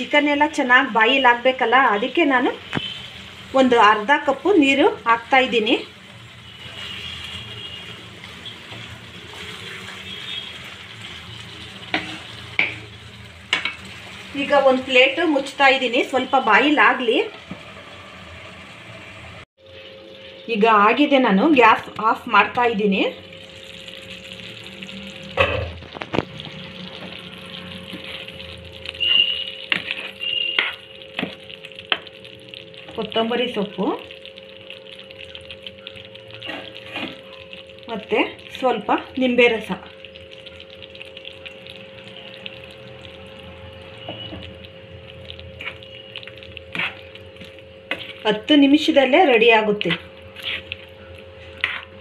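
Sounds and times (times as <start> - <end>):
gravy sizzling in pan: 0.0 - 52.0
spoon scraping a pan: 11.8 - 12.9, 29.0 - 32.1, 36.4 - 37.2, 45.6 - 48.4, 49.9 - 52.0
spoon stirring thick gravy: 26.4 - 33.0, 43.8 - 48.5, 49.8 - 52.0.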